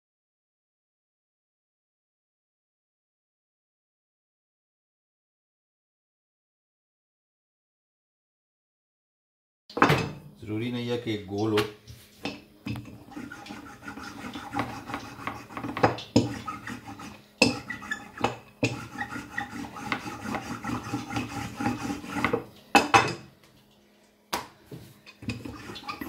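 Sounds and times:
rolling pin rolling dough: 0:11.9 - 0:23.2, 0:24.7 - 0:26.0.

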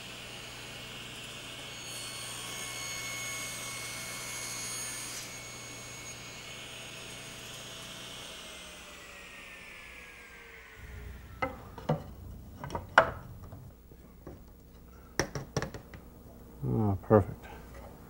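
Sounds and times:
table saw blade spinning down: 0:08.8 - 0:14.0
wooden knocks and taps: 0:11.4 - 0:14.6, 0:15.2 - 0:16.0.

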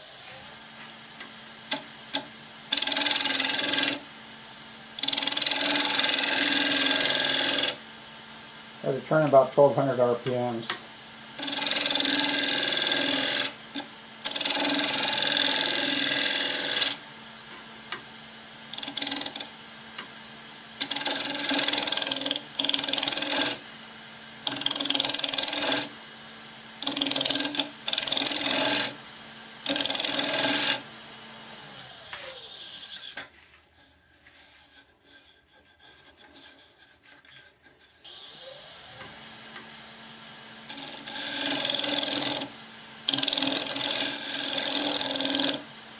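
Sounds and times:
lathe motor humming: 0:01.2 - 0:04.0, 0:05.0 - 0:07.8, 0:08.8 - 0:18.0, 0:18.7 - 0:20.2, 0:20.8 - 0:23.6, 0:24.4 - 0:26.0, 0:26.8 - 0:29.0, 0:29.6 - 0:33.0, 0:40.6 - 0:45.7
scraper cutting wood on lathe: 0:01.7 - 0:04.0, 0:05.0 - 0:07.8, 0:11.4 - 0:17.0, 0:18.7 - 0:19.5, 0:20.8 - 0:23.6, 0:24.4 - 0:26.0, 0:26.8 - 0:29.0, 0:29.6 - 0:30.9, 0:31.8 - 0:38.4, 0:40.7 - 0:42.5, 0:43.1 - 0:45.6.

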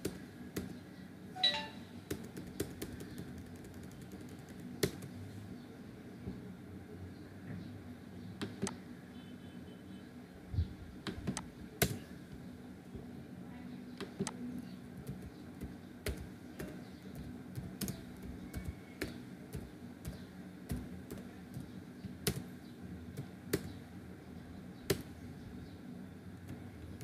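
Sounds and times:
keyboard key clicks: 0:01.4 - 0:05.1.

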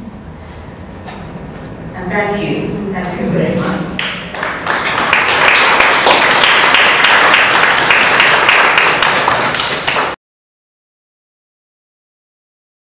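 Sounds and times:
audience applauding: 0:04.0 - 0:10.2.

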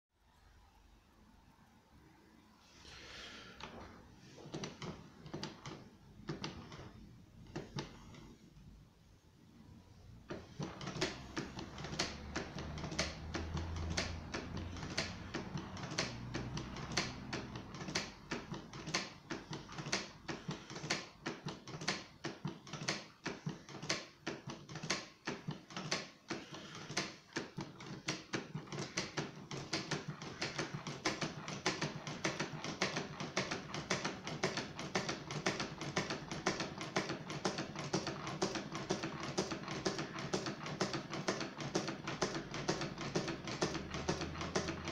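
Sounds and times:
solenoid engine clacking: 0:10.2 - 0:44.9.

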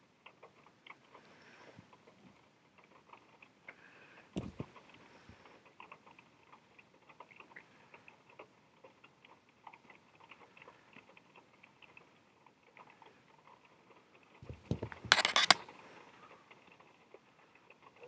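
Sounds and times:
wristwatch clicking and ticking: 0:14.9 - 0:15.7.

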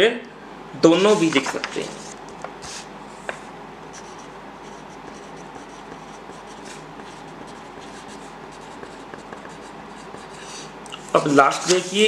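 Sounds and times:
pencil writing on paper: 0:03.9 - 0:12.0.

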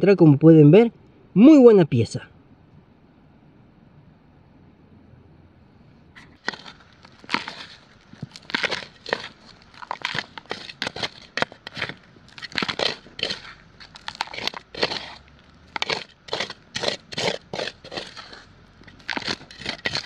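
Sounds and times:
short crunching sounds: 0:06.2 - 0:20.0.

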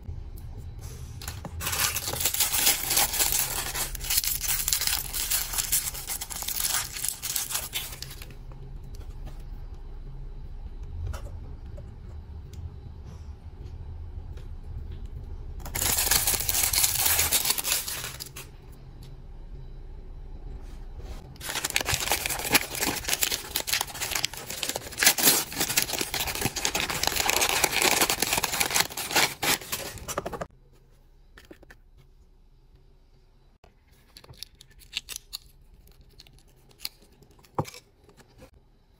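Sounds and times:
plastic wrapper crinkling: 0:01.6 - 0:08.3, 0:15.7 - 0:18.5, 0:21.4 - 0:30.5.

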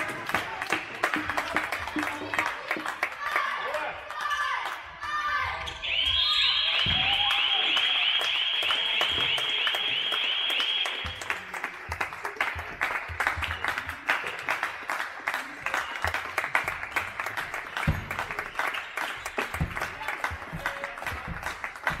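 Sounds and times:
spectators clapping: 0:00.0 - 0:22.0
ball bouncing on hall floor: 0:17.8 - 0:18.4, 0:19.4 - 0:22.0.

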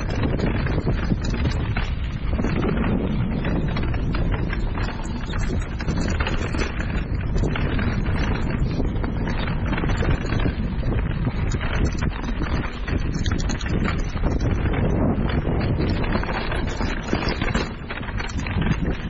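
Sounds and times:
bike rattling over bumps: 0:00.0 - 0:19.0
bike tyres crunching over stones: 0:00.0 - 0:19.0
wind buffeting microphone: 0:00.0 - 0:19.0.

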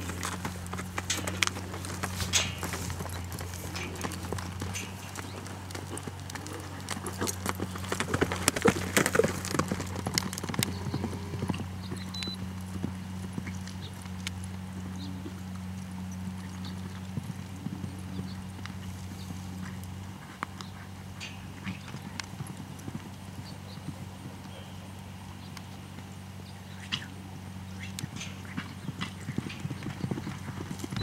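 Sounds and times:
horse hoofbeats on dirt: 0:00.0 - 0:31.0.

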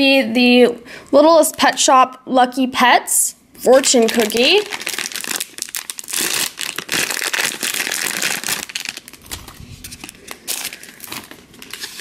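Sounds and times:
plastic wrapper crinkling: 0:03.7 - 0:12.0.

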